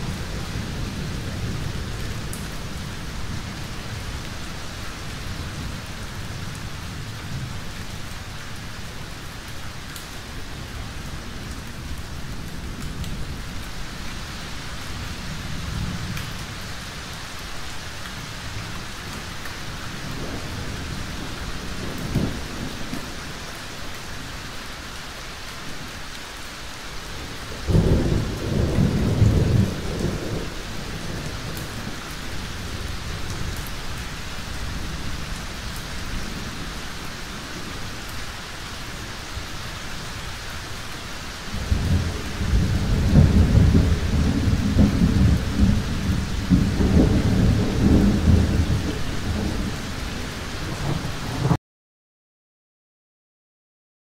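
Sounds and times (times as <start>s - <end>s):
steady rain: 0.0s - 51.6s
thunder rumbling: 27.7s - 37.9s, 41.5s - 51.6s.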